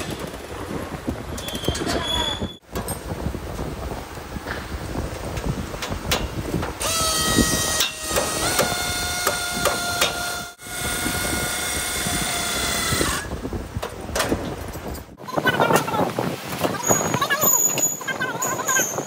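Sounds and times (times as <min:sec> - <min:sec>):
knocks and clanks: 0:02.6 - 0:03.7, 0:04.4 - 0:10.3, 0:13.7 - 0:15.1.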